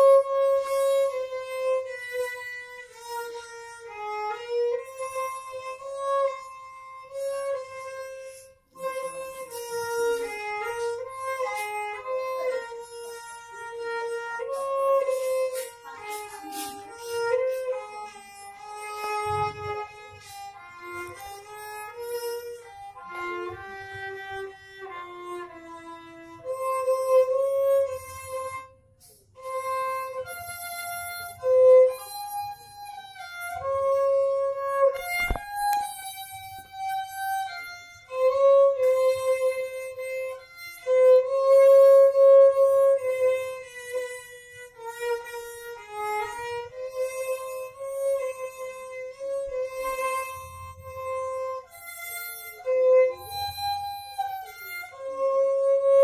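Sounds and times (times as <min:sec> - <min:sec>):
violin slow melody: 0:00.0 - 0:56.0
sharp click: 0:35.0 - 0:35.9.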